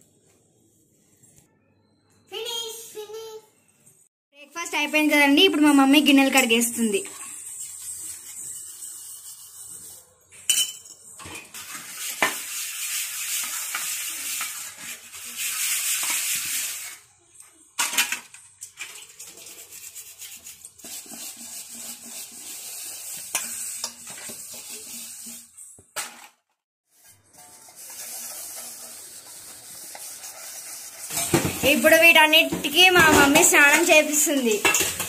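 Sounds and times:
steel wool scrubbing dishes: 5.7s - 17.0s, 17.9s - 25.8s, 26.9s - 35.0s
steel dishes clinking together: 10.5s - 11.6s, 33.1s - 35.0s.

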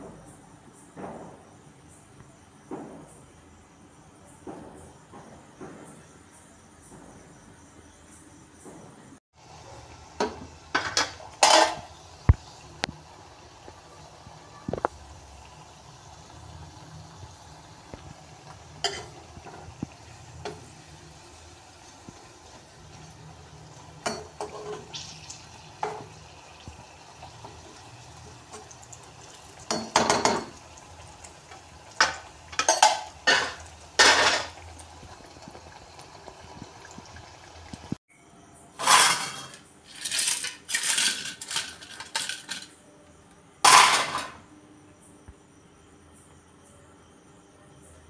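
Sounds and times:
oil hissing while deep-frying: 9.3s - 38.0s
metal spoon scraping a pan: 18.8s - 19.6s, 38.8s - 42.6s.

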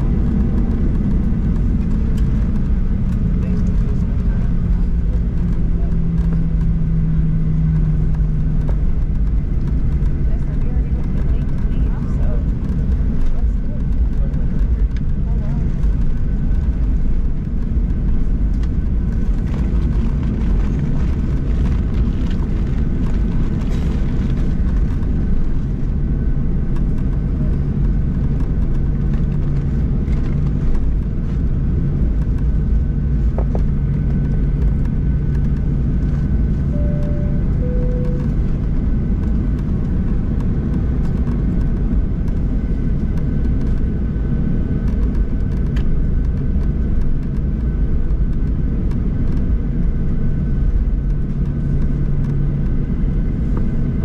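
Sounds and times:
airplane cabin rumble: 0.0s - 54.0s
two-note falling cabin chime: 36.8s - 38.4s.

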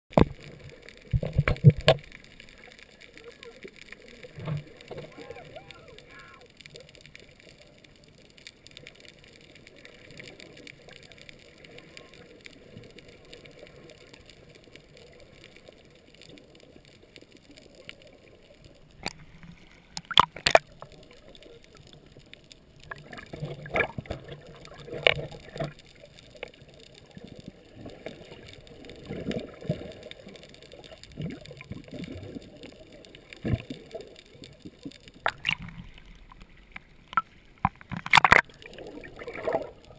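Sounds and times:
sharp clicks and knocks: 0.1s - 2.4s, 19.0s - 20.9s, 35.2s - 38.6s
underwater wash of water: 0.1s - 39.9s.

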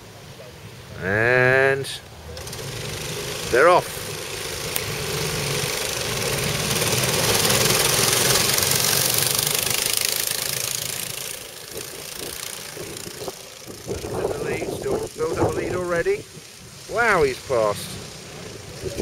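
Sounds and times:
go-karts accelerating past: 2.2s - 19.0s.

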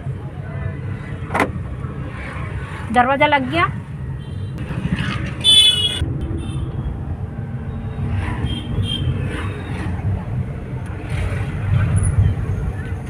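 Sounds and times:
vehicle horn honking: 5.4s - 6.7s.

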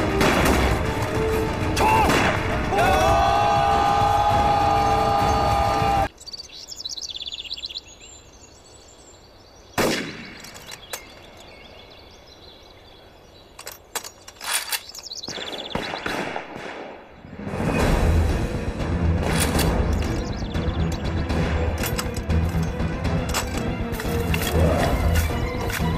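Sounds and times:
birds chirping: 1.2s - 25.9s
battle din: 1.6s - 6.1s
soldiers charging shout: 1.8s - 6.1s.

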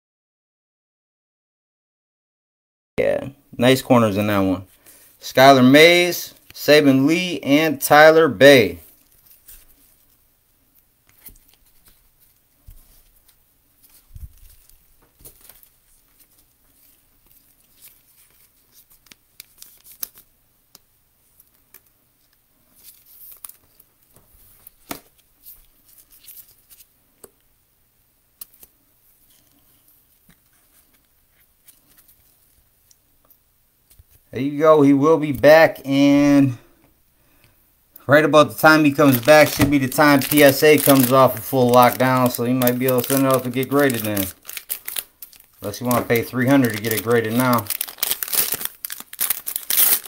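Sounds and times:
trading cards clicking and rustling: 38.6s - 50.0s.

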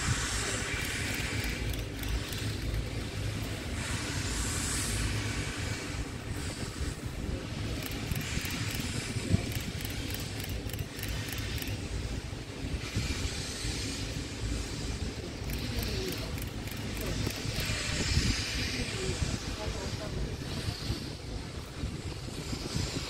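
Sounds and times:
steady low rumble: 0.0s - 23.0s
steam locomotive hissing: 0.0s - 23.0s.

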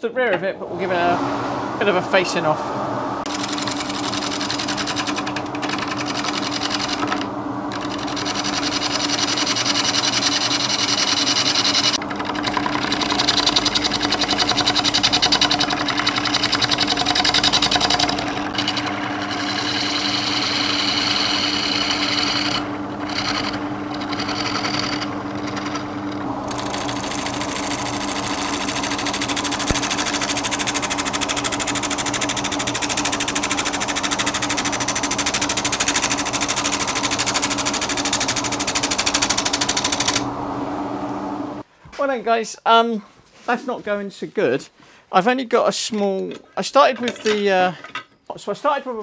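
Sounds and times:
wood lathe humming: 0.6s - 41.6s
gouge cut chattering: 3.3s - 40.2s.

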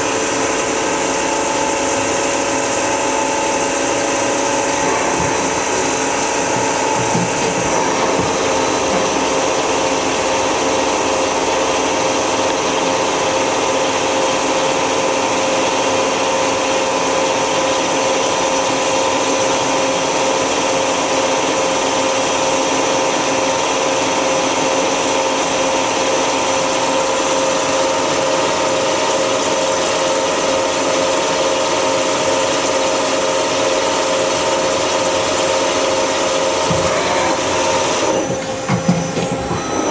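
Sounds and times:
spindle drive whining: 0.0s - 12.4s, 36.3s - 39.9s
lathe mechanical whir: 0.0s - 39.9s.

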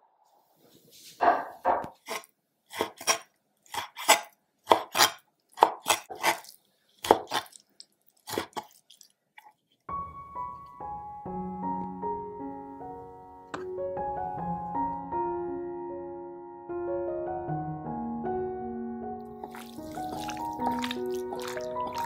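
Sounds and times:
cleaver chopping on wooden board: 1.8s - 6.4s
piano music: 9.9s - 22.0s.

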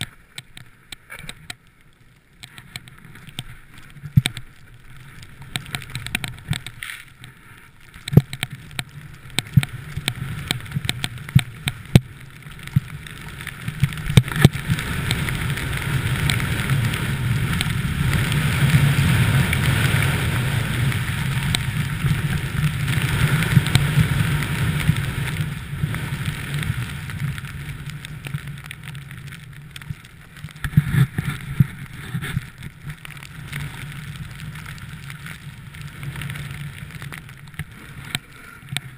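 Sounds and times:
wind rushing over camera: 2.4s - 38.9s
snowboard rushing through snow: 12.6s - 38.9s.

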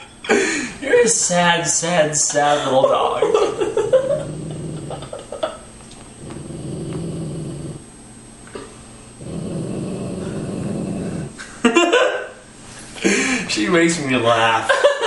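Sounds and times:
man laughing: 2.3s - 5.7s, 11.4s - 12.4s, 14.7s - 15.0s
dog growling low: 3.8s - 7.9s, 9.2s - 11.4s.

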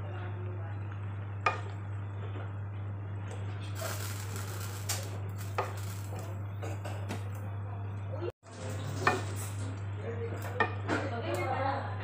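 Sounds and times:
steady low hum: 0.0s - 8.4s.

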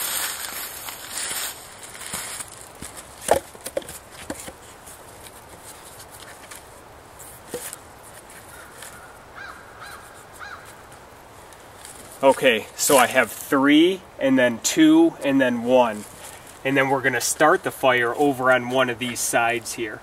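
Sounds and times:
footsteps through dry leaves: 0.0s - 3.3s
wooden log knocking on logs: 2.8s - 4.6s
crow cawing: 8.5s - 10.8s.

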